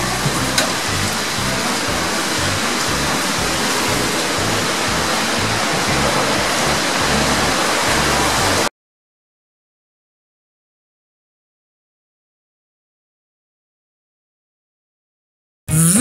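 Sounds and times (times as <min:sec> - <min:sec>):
swimming pool hall roar: 0:00.0 - 0:08.7.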